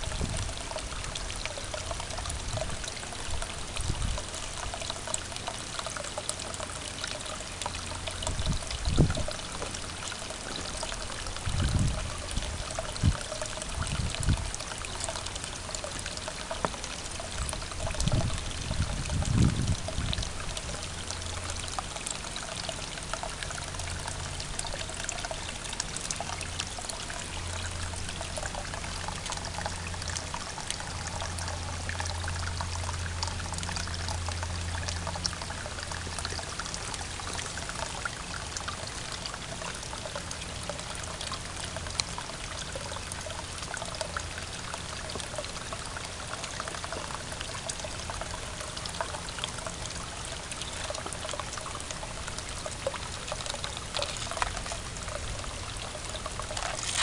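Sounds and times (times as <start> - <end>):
hose water running into plastic tub: 52.9 - 57.0.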